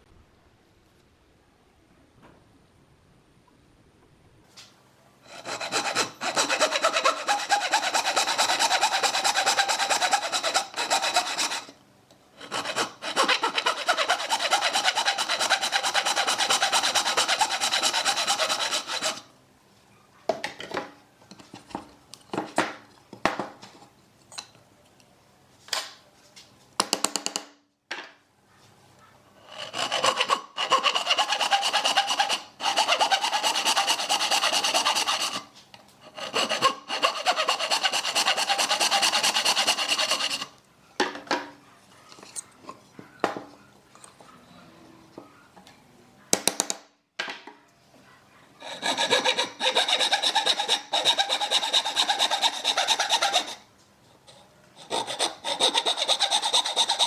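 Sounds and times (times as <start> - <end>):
hand saw rasping through wood: 5.3 - 11.8, 12.4 - 19.3, 29.5 - 35.5, 36.1 - 40.5, 48.6 - 53.6, 54.8 - 57.0.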